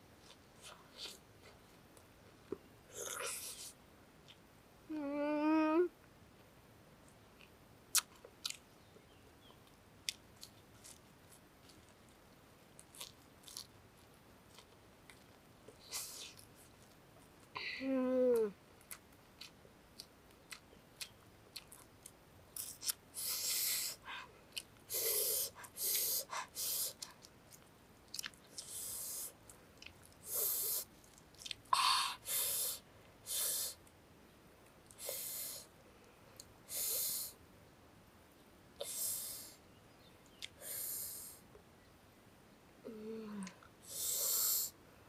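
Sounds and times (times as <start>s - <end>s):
chewing: 7.4s - 8.6s, 9.4s - 17.0s, 18.8s - 23.6s, 24.5s - 24.8s, 26.9s - 31.7s.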